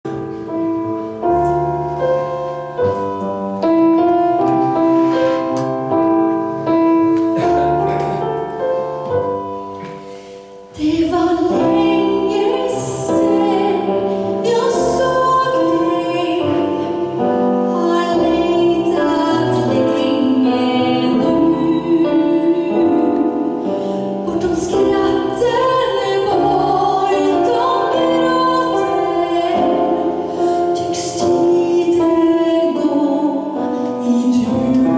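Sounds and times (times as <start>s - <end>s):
piano playing: 0.0s - 34.9s
woman singing a ballad: 10.7s - 34.9s.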